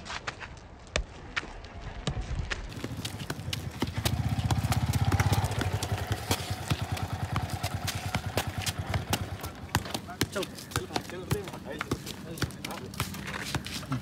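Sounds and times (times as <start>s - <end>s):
footsteps on road: 0.0s - 14.0s
football being kicked: 2.0s - 13.8s
motorbike engine passing: 2.8s - 10.2s.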